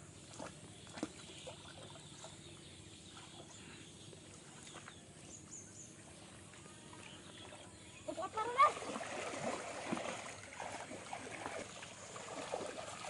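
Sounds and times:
hands splashing in pond water: 0.0 - 7.6, 8.2 - 13.0.

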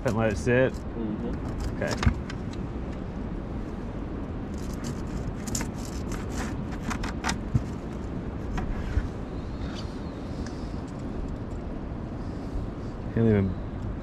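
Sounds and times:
light clicks and scrapes: 0.0 - 3.0, 4.5 - 11.6
wind rumble on microphone: 0.0 - 14.0.

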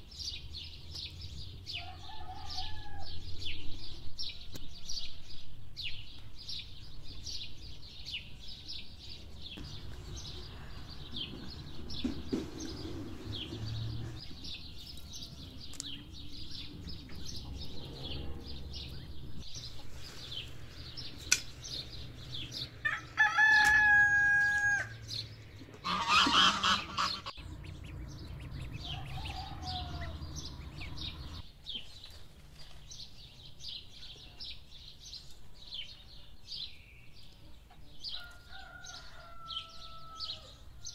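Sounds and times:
small birds chirping: 0.0 - 40.9
rooster crowing: 1.8 - 3.2, 22.8 - 25.0, 28.7 - 31.1, 38.1 - 40.9.

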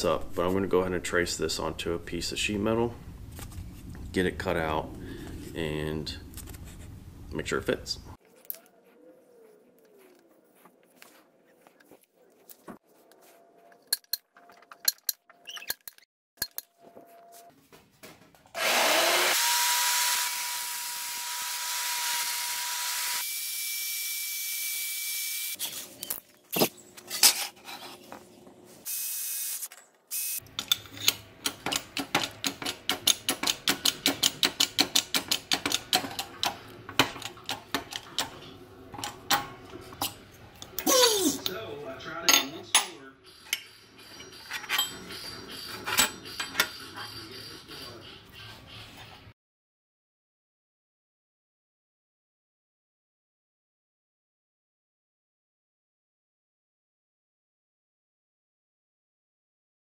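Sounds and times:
power tool whining: 18.6 - 25.6.

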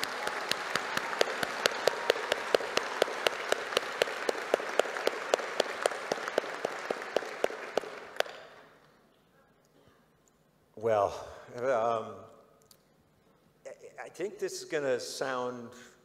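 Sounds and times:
crowd applause: 0.0 - 8.6
sharp evenly spaced claps: 0.0 - 8.8.

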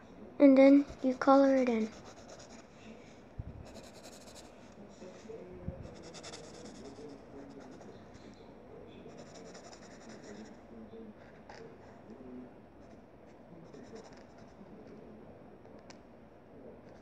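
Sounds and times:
pencil scribbling on paper: 0.9 - 2.7, 3.6 - 4.6, 5.8 - 8.0, 9.1 - 10.6.

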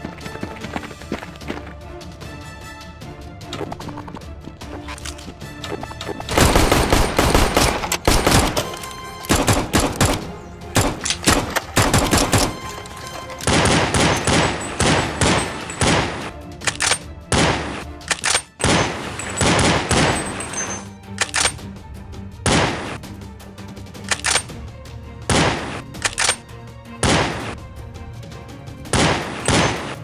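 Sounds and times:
background music: 0.0 - 30.0
rapid gunfire bursts: 6.3 - 8.6, 9.3 - 12.6, 13.4 - 16.3, 18.6 - 20.4.

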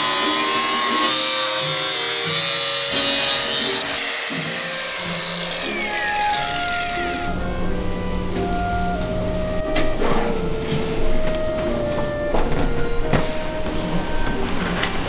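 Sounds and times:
power cutter hissing: 0.0 - 7.3
background music: 0.0 - 15.0.

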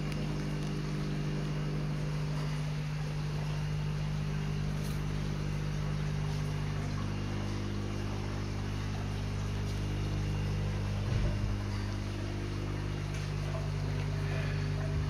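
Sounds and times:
low mechanical hum: 0.0 - 15.0.

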